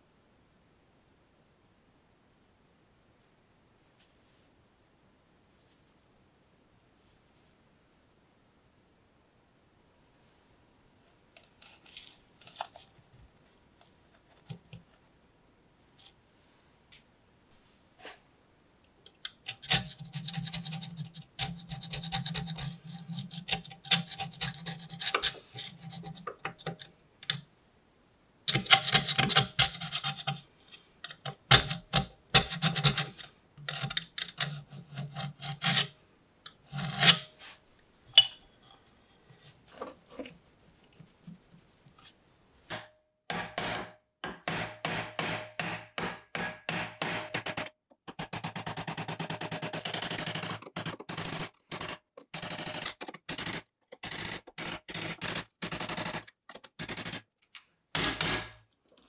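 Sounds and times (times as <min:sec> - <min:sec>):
metal pick scraping rust: 0:19.4 - 0:27.4, 0:28.5 - 0:40.3.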